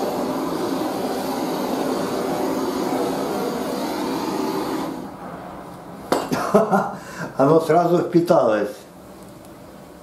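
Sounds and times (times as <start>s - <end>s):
butane torch hissing: 0.0s - 5.8s.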